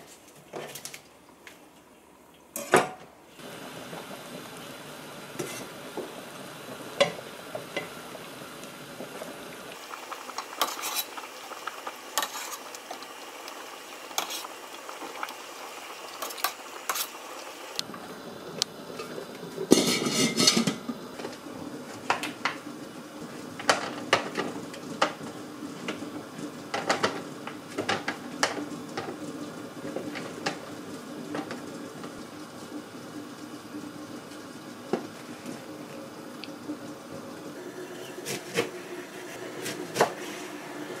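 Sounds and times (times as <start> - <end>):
utensil clinking on steel pot: 19.7 - 20.8
pot lid clattering: 19.7 - 20.9.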